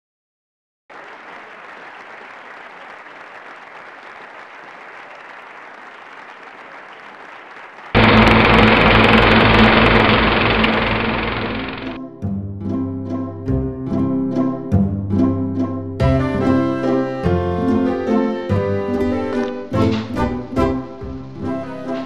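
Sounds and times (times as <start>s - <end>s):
soft audience-like hiss: 0.9s - 9.4s
burst of applause: 0.9s - 12.0s
music: 12.0s - 22.0s.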